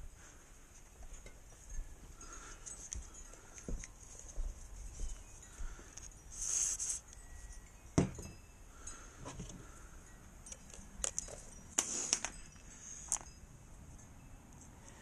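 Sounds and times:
small metallic clicks and clinks: 0:00.7 - 0:15.0.

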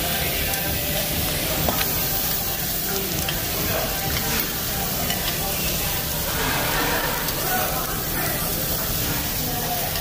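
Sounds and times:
meat sizzling on a grill: 0:00.0 - 0:10.0.

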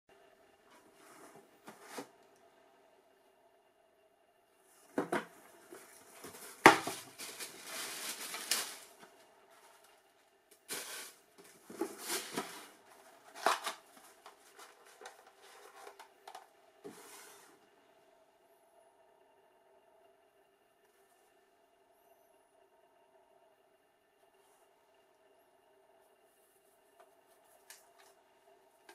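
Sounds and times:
tissue paper rustling: 0:05.7 - 0:09.9, 0:10.7 - 0:15.9.

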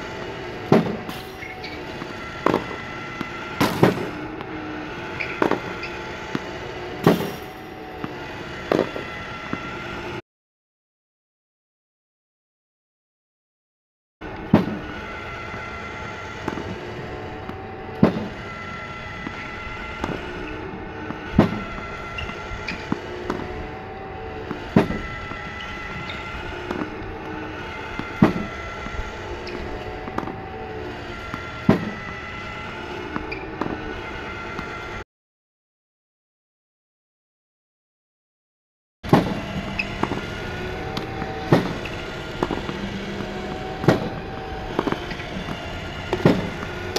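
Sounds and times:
spinning launch wheels whirring: 0:00.0 - 0:10.2, 0:14.2 - 0:35.0, 0:39.1 - 0:46.9
ball machine launch pops: 0:00.5 - 0:09.6, 0:14.4 - 0:14.9, 0:16.4 - 0:23.7, 0:24.3 - 0:30.4, 0:31.2 - 0:32.1, 0:39.1 - 0:46.9.

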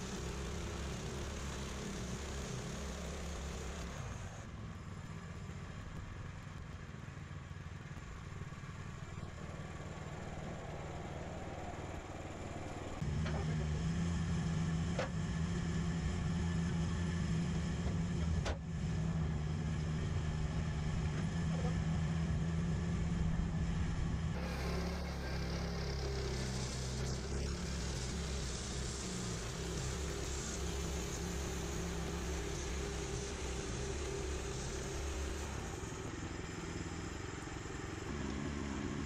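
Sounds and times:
sawmill engine running: 0:00.0 - 0:39.0.

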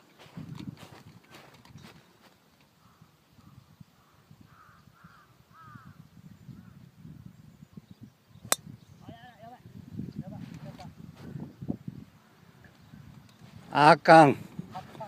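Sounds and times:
faint bird calls: 0:02.2 - 0:06.9.

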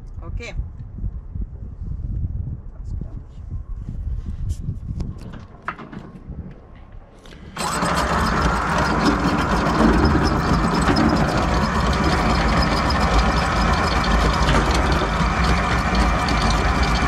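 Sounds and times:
anchor windlass motor hum: 0:05.2 - 0:17.0.

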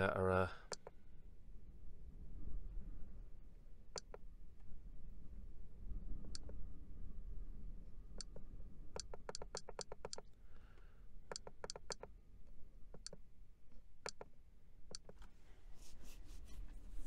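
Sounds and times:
low rumble: 0:01.0 - 0:09.0.

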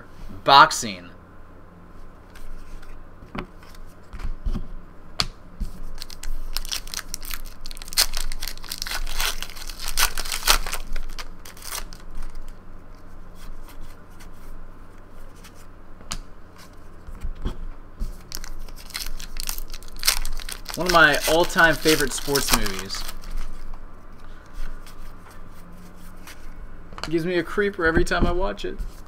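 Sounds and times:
cards being handled: 0:05.2 - 0:14.5, 0:15.2 - 0:27.2
foil wrapper crinkling: 0:05.8 - 0:12.6, 0:18.1 - 0:23.7.

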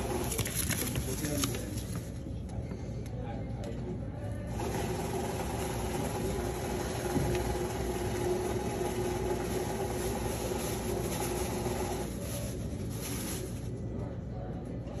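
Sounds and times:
banknote counting machine whirring: 0:00.0 - 0:01.4, 0:04.5 - 0:13.3.

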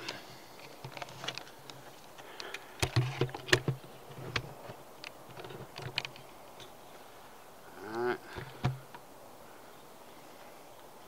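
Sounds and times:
handling knocks and clicks: 0:00.0 - 0:06.8, 0:08.3 - 0:09.0.

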